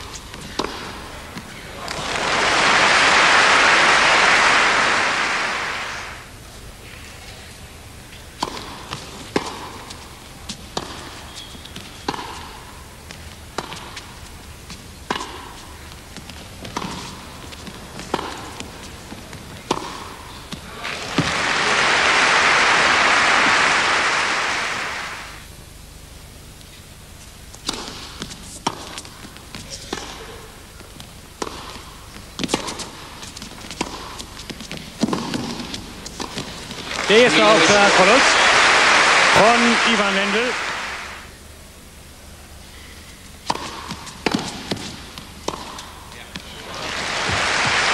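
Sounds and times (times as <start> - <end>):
racquets striking tennis ball: 0.0 - 2.4, 8.2 - 21.5, 27.6 - 30.2, 30.9 - 38.2, 43.4 - 46.5
tennis ball hit by racquet: 0.4 - 1.1, 8.4 - 9.8, 10.7 - 11.1, 12.1 - 12.6, 15.1 - 15.6, 16.7 - 18.7, 19.6 - 20.4, 31.4 - 31.8, 35.0 - 36.7, 43.4 - 45.8
ball bouncing on court: 0.4 - 2.0, 16.2 - 21.4, 33.7 - 37.1.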